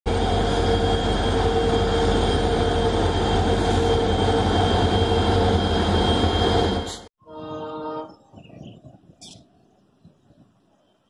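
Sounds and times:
diesel locomotive engines throbbing: 0.1 - 9.0.

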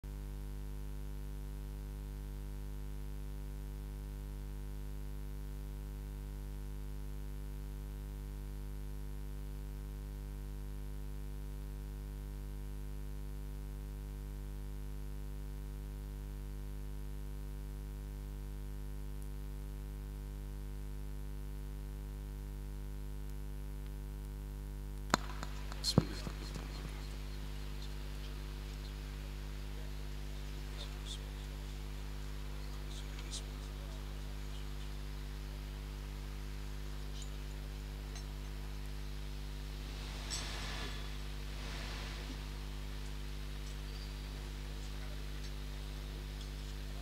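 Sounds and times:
electrical mains hum: 0.0 - 47.0
crackling: 23.8 - 47.0.

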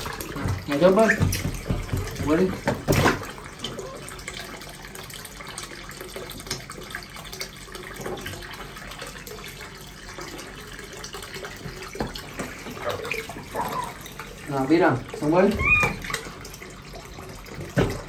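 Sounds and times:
water pouring into pool: 0.0 - 18.0
small splashes in water: 11.6 - 16.7.

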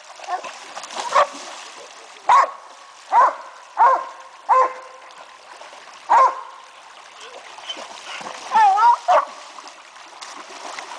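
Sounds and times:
shallow stream trickling: 0.0 - 10.9
dog barking: 1.1 - 1.3, 2.3 - 4.9, 6.1 - 6.5, 8.6 - 9.3.

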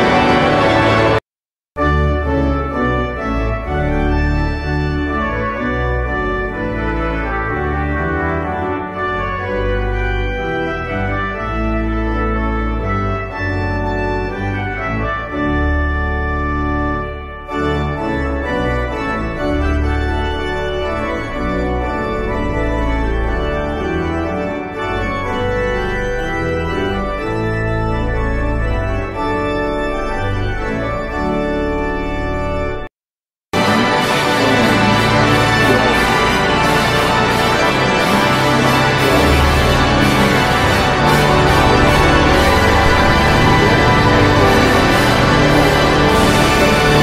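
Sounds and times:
organ-style keyboard chords: 0.0 - 1.2, 1.8 - 32.9, 33.5 - 47.0
heavy low bass line: 33.6 - 47.0.

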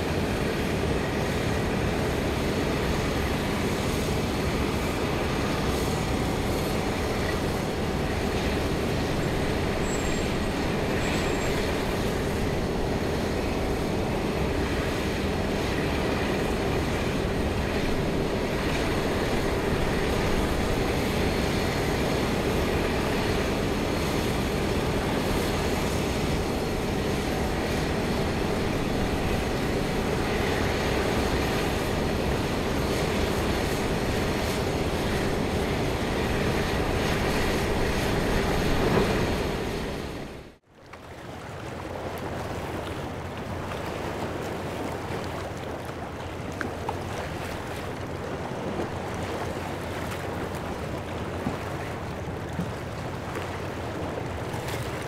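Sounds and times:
industrial machinery drone: 0.0 - 40.6.

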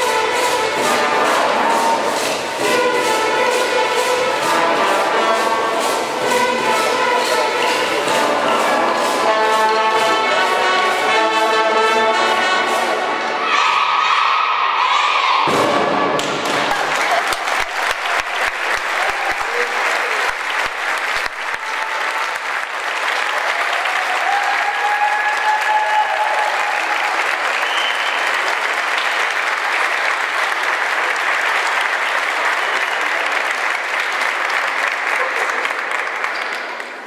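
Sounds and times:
audience applause: 16.1 - 37.0.

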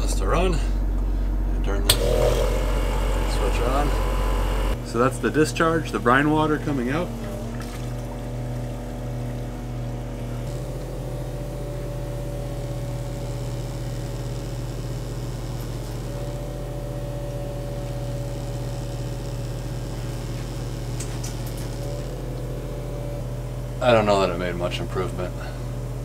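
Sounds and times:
machinery hum: 0.0 - 26.0.

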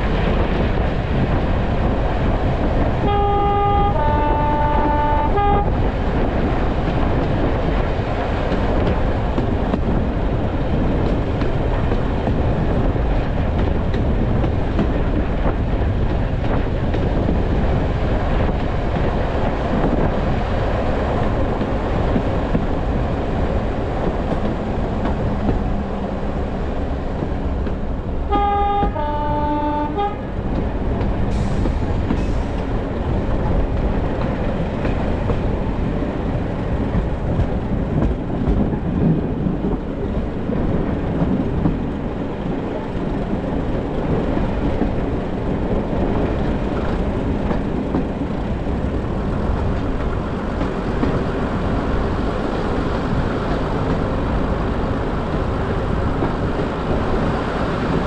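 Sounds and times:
train running on rails: 0.0 - 58.0
two-tone train horn: 3.0 - 5.9, 28.2 - 30.4.

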